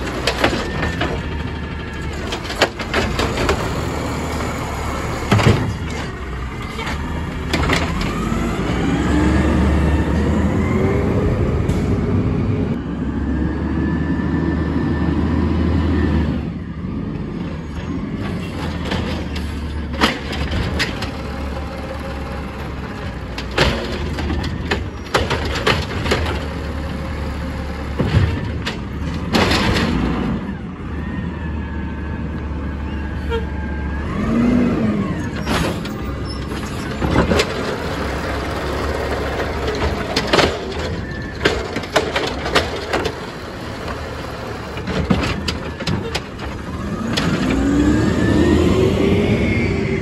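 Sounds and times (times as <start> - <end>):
cart knocking and banging: 0.0 - 4.3, 22.6 - 26.9, 27.8 - 30.3, 35.4 - 47.5
truck engine droning: 0.0 - 50.0.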